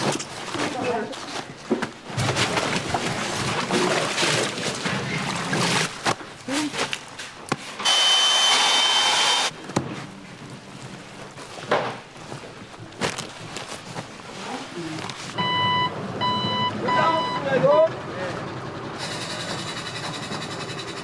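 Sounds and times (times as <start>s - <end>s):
cabbage leaves rustling and crunching: 10.0s - 15.4s.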